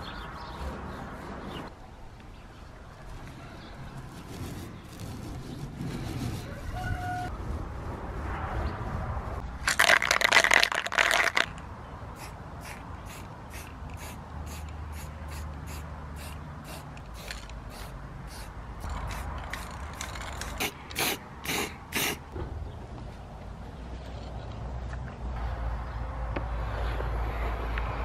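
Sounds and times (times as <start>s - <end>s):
aerosol spray can hissing: 12.2s - 19.8s, 20.4s - 22.2s.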